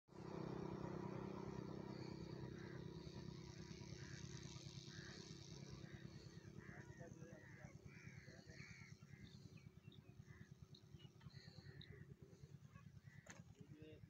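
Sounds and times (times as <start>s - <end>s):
low steady rumble: 0.1s - 14.0s
crows cawing: 1.9s - 12.1s, 13.0s - 13.4s.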